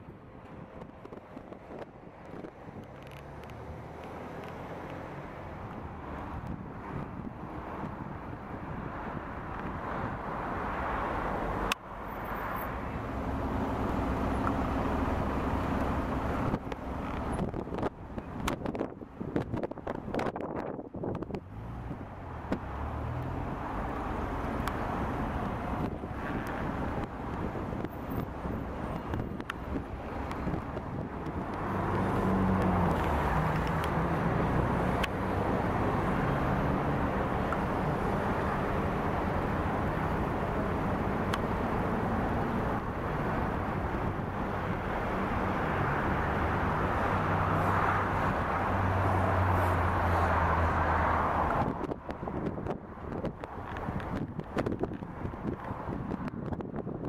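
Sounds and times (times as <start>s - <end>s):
diesel engine humming: 12.8s - 19.4s.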